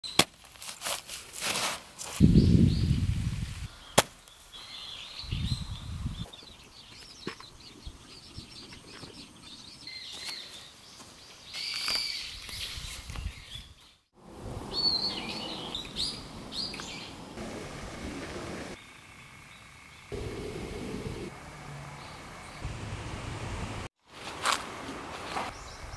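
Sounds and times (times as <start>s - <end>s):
hands rustling soil and mulch: 0.1s - 2.4s
birds chirping: 2.2s - 23.3s.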